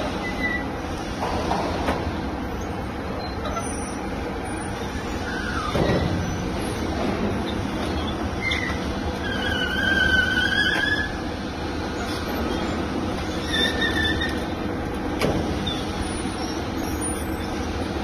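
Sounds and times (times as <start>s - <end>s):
high-pitched squeals: 7.4s - 11.2s.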